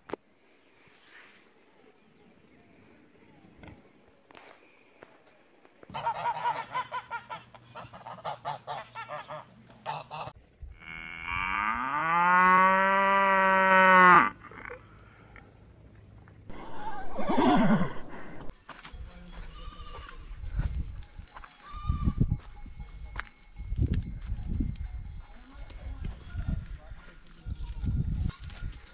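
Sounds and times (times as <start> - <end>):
geese honking: 5.9 - 10.4
cow mooing: 10.8 - 14.8.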